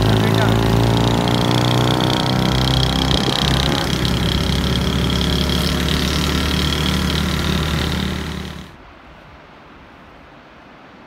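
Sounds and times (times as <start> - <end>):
vehicle engine humming: 0.0 - 8.8.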